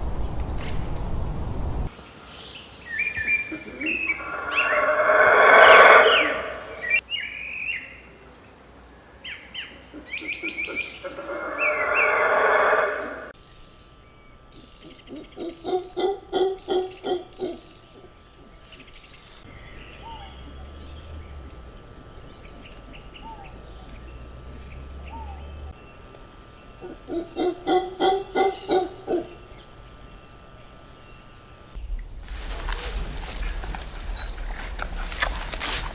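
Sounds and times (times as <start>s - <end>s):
animal hooting calls: 3.4s - 7.0s, 10.0s - 13.4s, 26.8s - 29.4s.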